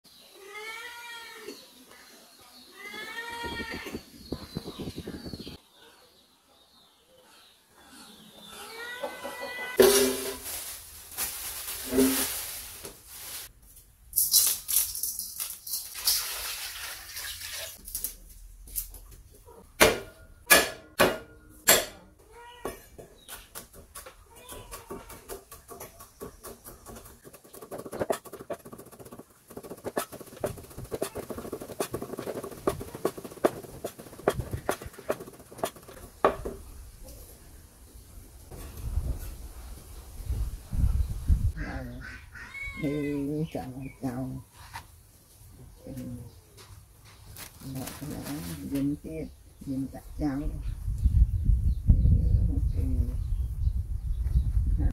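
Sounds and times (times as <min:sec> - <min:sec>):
plastic bag rustling: 0:09.8 - 0:13.5, 0:47.2 - 0:48.8.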